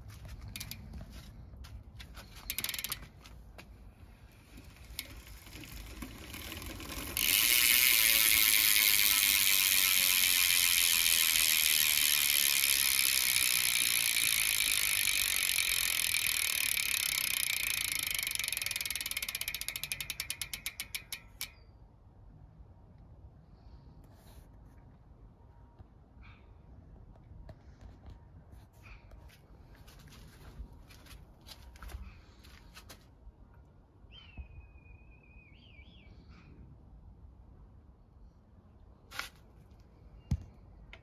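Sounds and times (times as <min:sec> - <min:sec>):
bicycle freewheel ratcheting clicks: 0:00.3 - 0:01.0, 0:02.3 - 0:03.2, 0:04.4 - 0:21.6.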